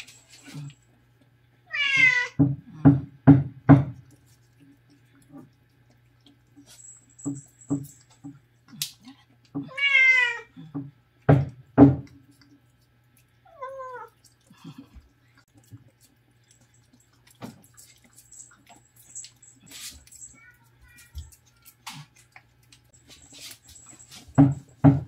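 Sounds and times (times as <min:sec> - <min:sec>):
cat meowing: 0:01.7 - 0:02.4, 0:09.6 - 0:10.5.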